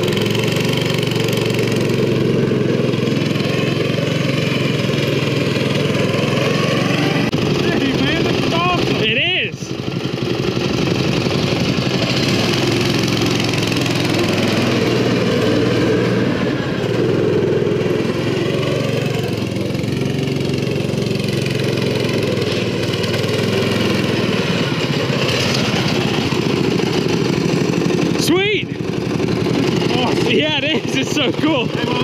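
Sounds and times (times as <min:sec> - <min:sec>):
small engine running: 0:00.0 - 0:32.0.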